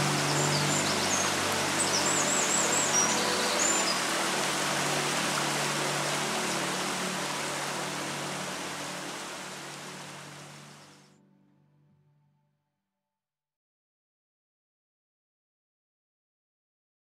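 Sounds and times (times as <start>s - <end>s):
birds chirping: 0.0s - 11.1s
river water rushing: 0.0s - 11.1s.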